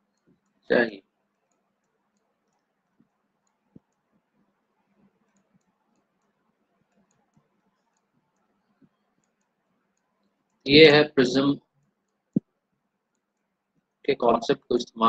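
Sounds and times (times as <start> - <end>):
soft clicks of pointing device: 1.2 - 10.6, 11.8 - 14.0.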